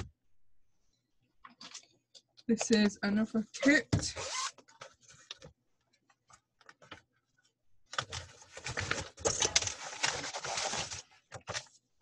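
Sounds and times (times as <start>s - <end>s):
plastic bag rustling: 8.1s - 11.3s.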